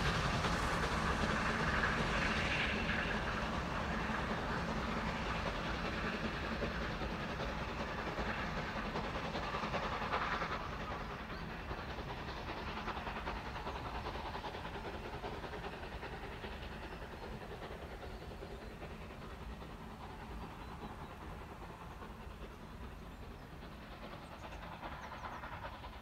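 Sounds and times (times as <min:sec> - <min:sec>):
steam locomotive and train running: 0:00.0 - 0:26.0.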